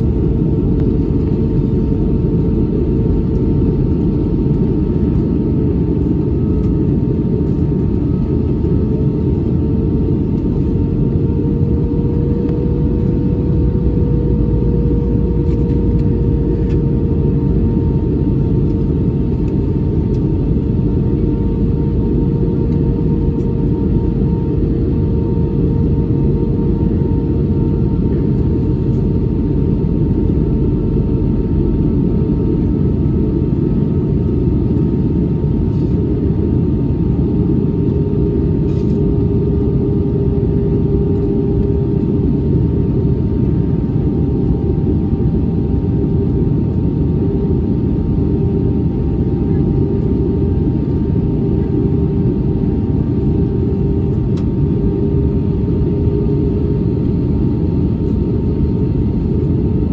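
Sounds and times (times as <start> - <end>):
airliner cabin rumble: 0.0 - 59.9.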